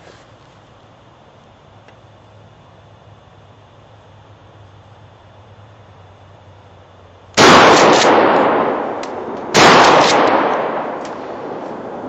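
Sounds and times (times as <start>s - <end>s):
shotgun blasts echoing: 7.4s - 12.0s.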